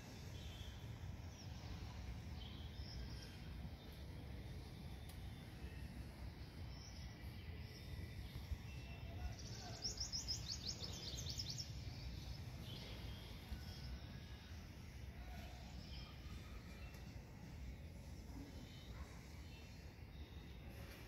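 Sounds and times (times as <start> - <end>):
bird chirping: 4.7 - 14.1.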